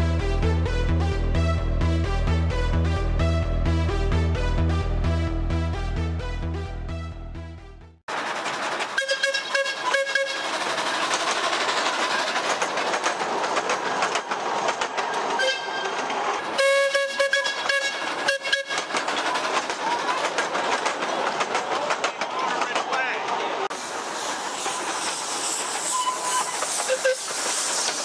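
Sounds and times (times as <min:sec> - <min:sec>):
music: 0:00.0 - 0:08.0
train wheels rolling on rails: 0:08.1 - 0:28.0
steam whistle toots: 0:09.0 - 0:10.4, 0:15.4 - 0:15.9, 0:16.6 - 0:18.8, 0:25.9 - 0:27.9.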